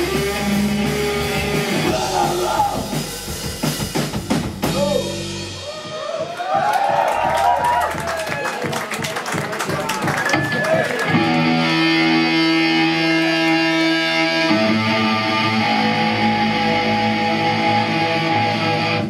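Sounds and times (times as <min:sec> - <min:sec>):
electric guitar chords ringing: 0:00.0 - 0:03.4, 0:11.1 - 0:19.0.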